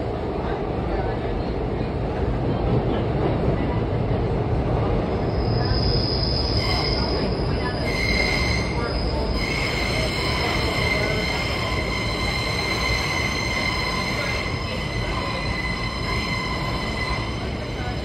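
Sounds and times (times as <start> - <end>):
train wheels rumbling on rail: 0.0 - 18.0
high-pitched wheel squeal: 5.3 - 17.5.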